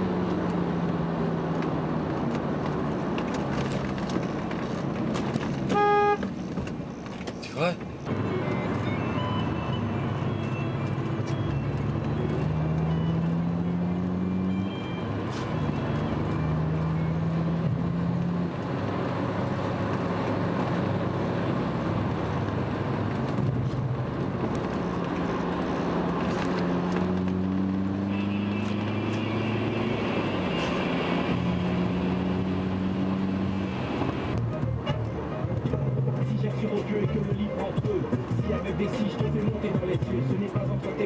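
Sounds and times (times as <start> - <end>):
car engine hum: 0.0 - 41.0.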